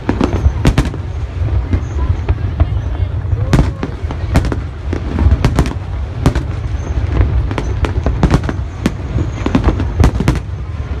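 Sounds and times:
distant booms rumbling: 0:00.0 - 0:11.0
firework bangs and cracks: 0:00.0 - 0:11.0.

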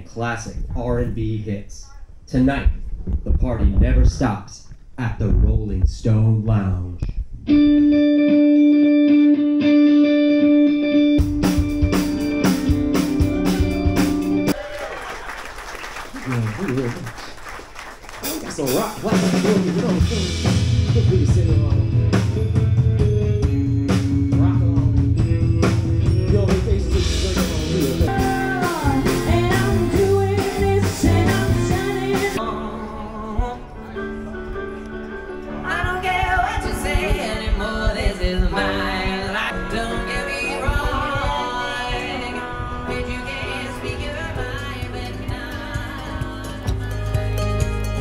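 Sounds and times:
distorted electric guitar: 0:07.0 - 0:14.5
rock band playing: 0:07.5 - 0:14.6, 0:18.2 - 0:32.6, 0:33.3 - 0:48.0
drum kit: 0:11.2 - 0:14.6, 0:18.2 - 0:32.6, 0:35.6 - 0:48.0
person singing: 0:26.0 - 0:34.3, 0:35.6 - 0:48.0.

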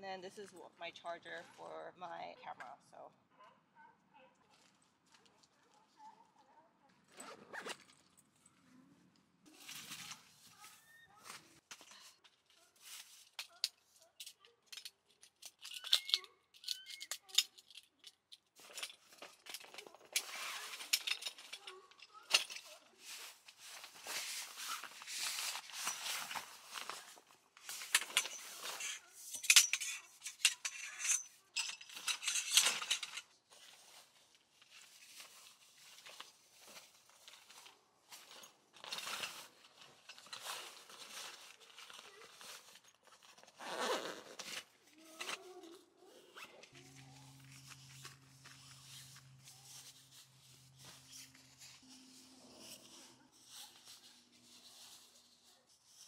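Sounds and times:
fabric rustling: 0:20.2 - 0:29.3.

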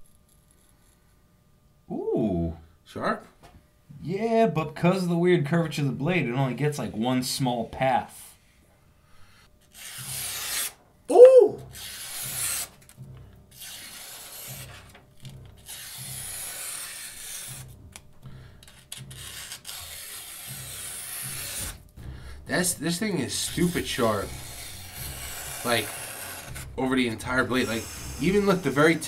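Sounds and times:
knife slicing paper: 0:09.7 - 0:10.8, 0:11.7 - 0:12.9, 0:13.6 - 0:15.0, 0:15.6 - 0:17.7, 0:18.7 - 0:21.8, 0:22.6 - 0:29.0.

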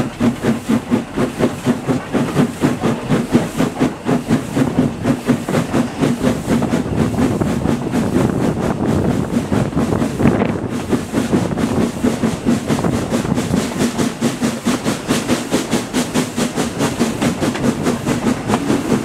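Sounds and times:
steam locomotive exhaust beats: 0:00.0 - 0:19.0
wheels running on rails: 0:00.0 - 0:19.0
wind on microphone: 0:04.6 - 0:14.8.

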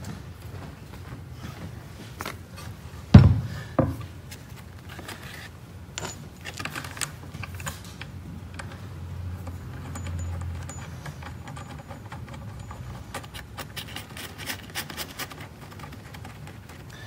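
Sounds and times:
heavy knock on wooden tabletop: 0:03.2 - 0:04.0.

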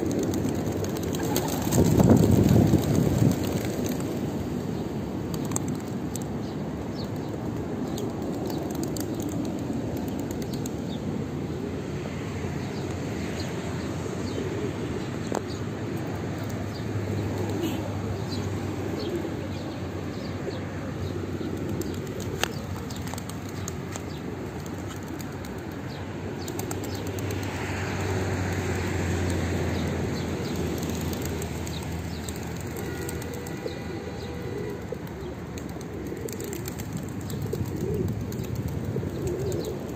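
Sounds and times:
pigeons cooing: 0:00.0 - 0:04.4, 0:17.0 - 0:39.9
wings flapping: 0:00.0 - 0:04.6, 0:05.3 - 0:06.3, 0:07.0 - 0:10.8, 0:21.5 - 0:39.9.

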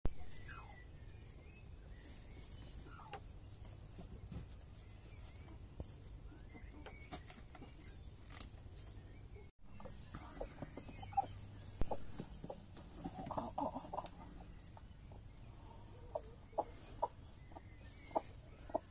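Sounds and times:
straw rustling and clicking: 0:02.0 - 0:09.0
hen clucking: 0:02.4 - 0:07.8, 0:09.7 - 0:18.9.

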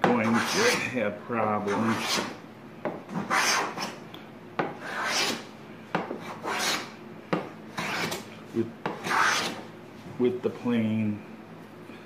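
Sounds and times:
wooden plane shaving a board: 0:00.0 - 0:00.9, 0:01.6 - 0:02.4, 0:03.1 - 0:04.0, 0:04.8 - 0:05.4, 0:06.2 - 0:06.9, 0:07.8 - 0:08.2, 0:08.9 - 0:09.6.

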